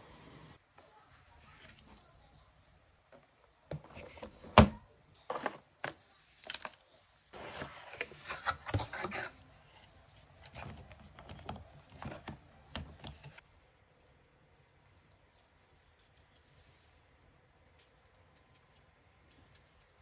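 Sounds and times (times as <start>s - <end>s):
cardboard and paper rustling: 3.7s - 13.4s.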